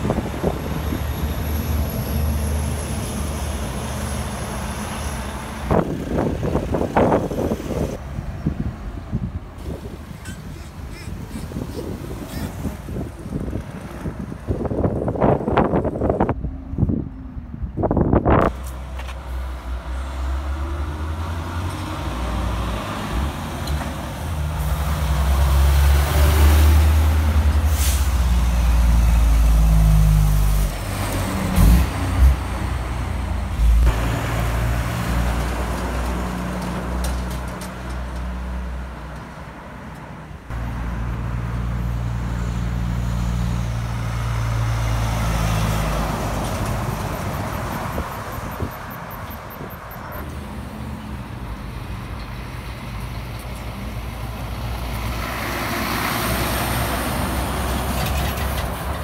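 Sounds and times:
diesel trucks passing: 0.0 - 59.0
air brakes hissing: 27.6 - 28.4.

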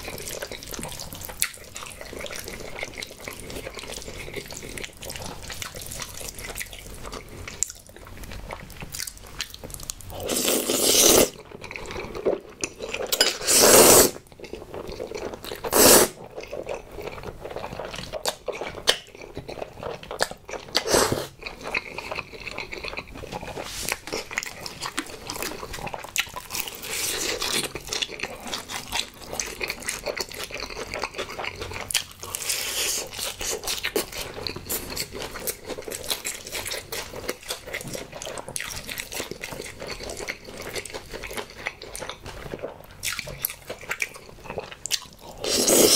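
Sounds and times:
wet chewing and crunching: 0.0 - 45.9
slurping noodles: 10.2 - 11.4, 13.0 - 14.2, 15.6 - 16.2, 20.8 - 21.4, 45.4 - 45.9.

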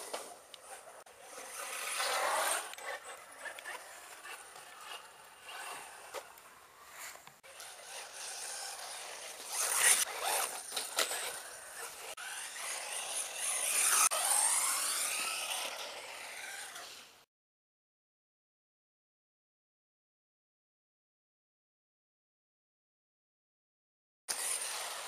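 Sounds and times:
toy buggy motor whining: 0.0 - 17.2, 24.3 - 25.0.

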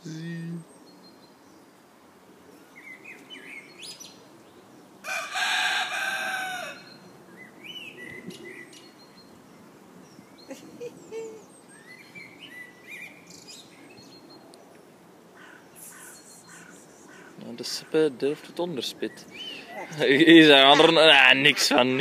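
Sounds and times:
small birds chirping: 0.0 - 5.1, 5.9 - 22.0
rooster crowing: 5.0 - 7.0.

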